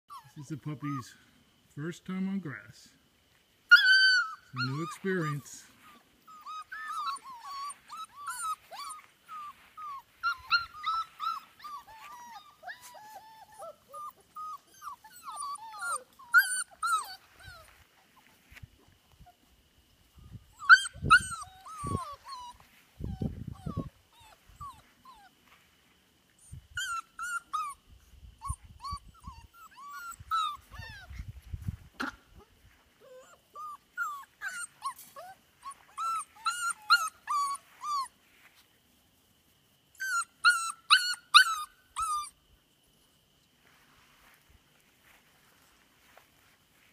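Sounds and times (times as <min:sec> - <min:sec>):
puppies whimpering and yipping: 0:00.1 - 0:01.0, 0:03.7 - 0:18.5, 0:20.2 - 0:25.4, 0:26.4 - 0:31.4, 0:32.3 - 0:38.2, 0:40.0 - 0:42.4.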